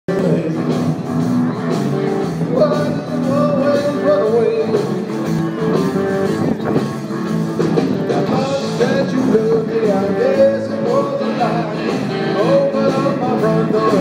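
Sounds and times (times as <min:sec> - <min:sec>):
live rock band over speakers: 0:00.1 - 0:14.0.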